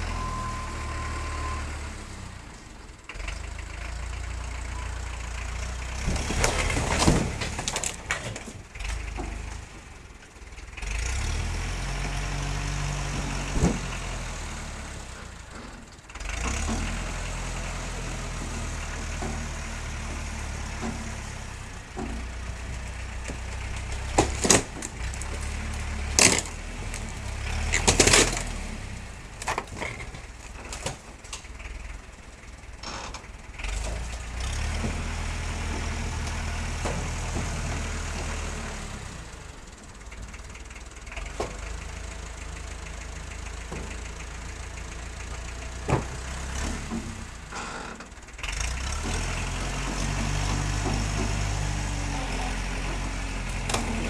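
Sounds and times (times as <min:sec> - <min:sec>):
tractor engine under load: 0:00.0 - 0:54.0
wood cracking: 0:05.9 - 0:09.7, 0:21.9 - 0:31.6
debris crashing down: 0:06.0 - 0:09.5.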